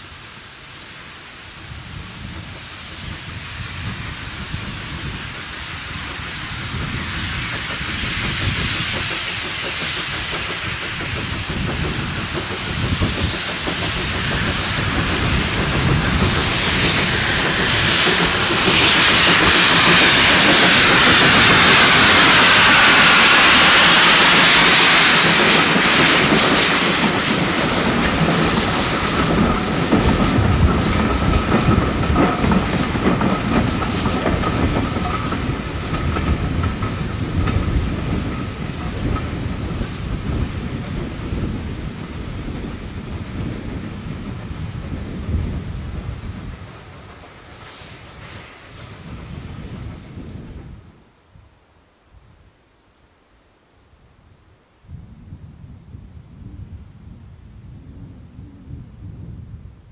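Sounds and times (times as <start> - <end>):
steam hissing: 0.0 - 51.3
train wheels clacking on rail joints: 4.6 - 49.2.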